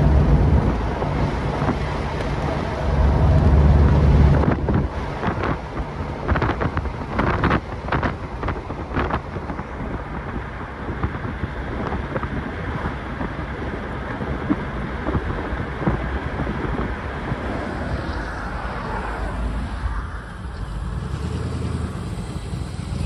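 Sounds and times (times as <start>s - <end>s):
car engine cruising: 0.0s - 23.0s
road and wind noise: 0.0s - 23.0s
wind buffeting microphone: 0.0s - 23.0s.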